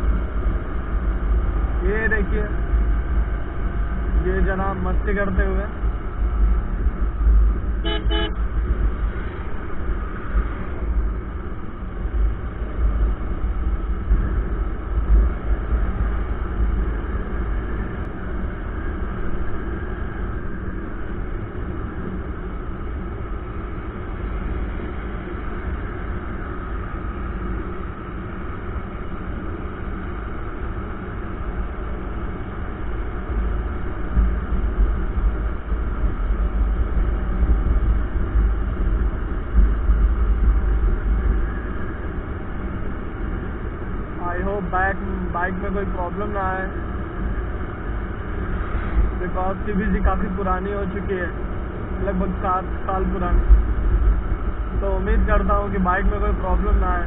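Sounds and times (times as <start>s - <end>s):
vehicle horn beeps: 7.8s - 8.4s.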